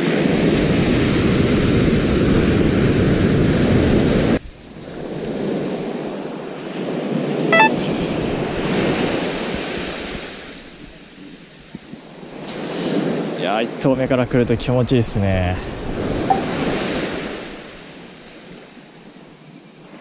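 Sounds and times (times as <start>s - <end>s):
brief high chirp: 7.6s - 7.8s, 16.3s - 16.5s.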